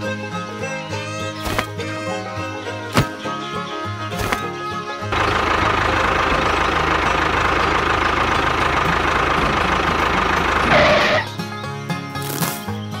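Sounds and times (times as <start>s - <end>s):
tractor engine running: 1.4s - 1.8s, 2.8s - 11.5s.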